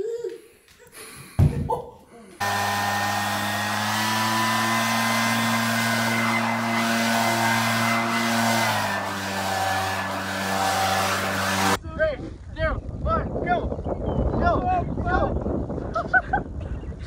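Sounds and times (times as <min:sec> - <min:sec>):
leaf blower running: 0:02.4 - 0:11.8.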